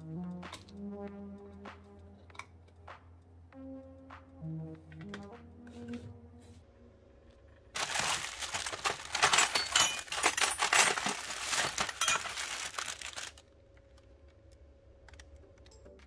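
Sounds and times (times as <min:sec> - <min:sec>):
metal hardware clinking: 0:07.8 - 0:13.3
plastic bags crinkling: 0:07.8 - 0:13.4.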